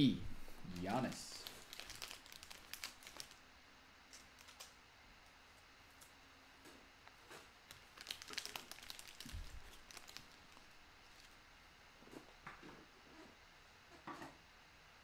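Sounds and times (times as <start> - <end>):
cards and plastic crinkling: 0.7 - 3.4, 4.2 - 4.8, 7.7 - 11.4.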